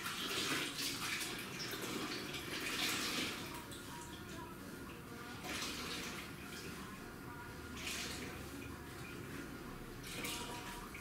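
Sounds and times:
water sloshing in mop bucket: 0:00.0 - 0:04.5, 0:07.7 - 0:11.0
water running off mop: 0:00.0 - 0:11.0.

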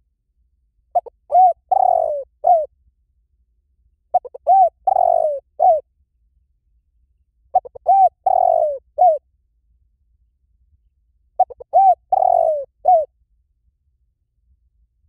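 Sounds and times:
dove cooing: 0:01.0 - 0:02.7, 0:04.1 - 0:05.8, 0:07.5 - 0:09.2, 0:11.4 - 0:13.1.

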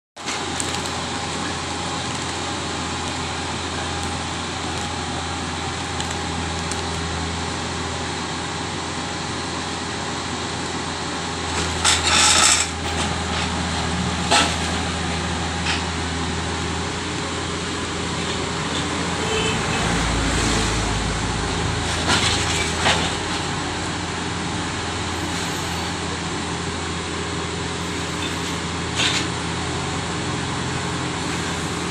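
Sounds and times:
diesel engine running: 0:00.2 - 0:31.9.

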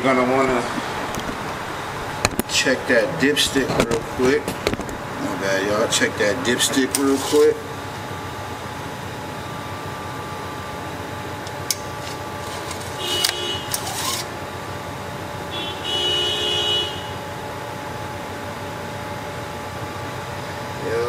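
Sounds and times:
background hum with tones: 0:00.0 - 0:21.0
dipstick scraping squeals: 0:06.7 - 0:07.6, 0:12.0 - 0:14.4.

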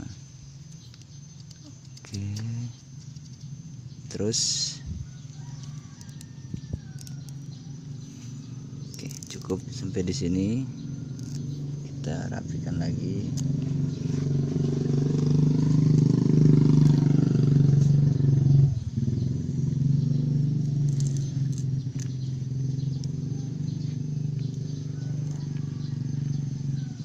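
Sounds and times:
motor engine humming: 0:00.0 - 0:27.0.

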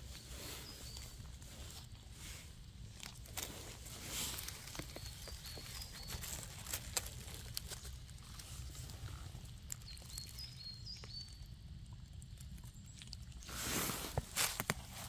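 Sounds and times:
twigs and leaves crackling: 0:00.0 - 0:15.0
small bird calling: 0:04.3 - 0:11.5.

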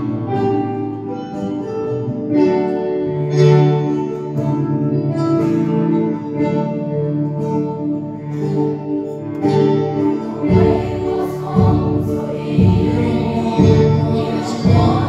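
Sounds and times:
mixed choir singing: 0:09.9 - 0:15.0
low beat: 0:10.5 - 0:15.0.

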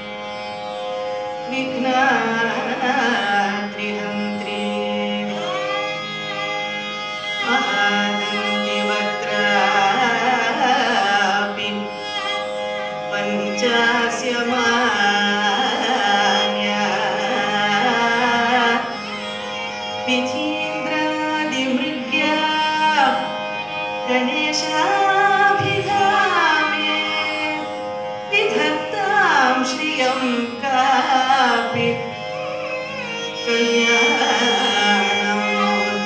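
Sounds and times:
tambura drone: 0:00.0 - 0:36.0
violin accompaniment: 0:00.0 - 0:36.0
woman singing ornamented phrases: 0:28.3 - 0:32.0.

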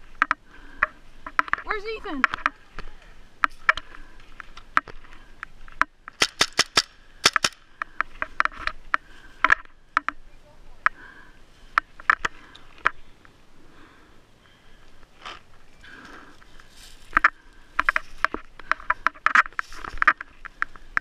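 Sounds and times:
paintball markers firing: 0:05.8 - 0:08.0.

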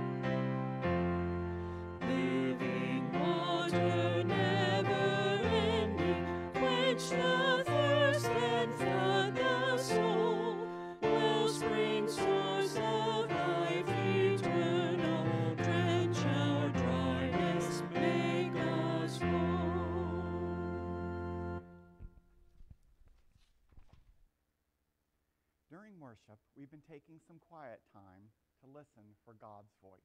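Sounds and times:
person singing a hymn: 0:00.0 - 0:21.8
keyboard chords: 0:00.0 - 0:22.0.

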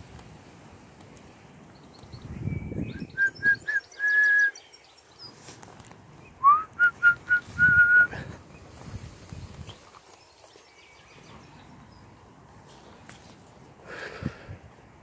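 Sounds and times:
person whistling: 0:03.1 - 0:04.6, 0:06.4 - 0:08.2.

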